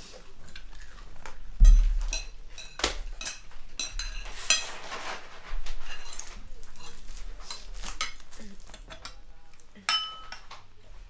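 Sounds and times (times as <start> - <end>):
dull thump: 1.6 - 2.1
cutlery clinking on plates: 1.6 - 5.0, 5.8 - 10.7.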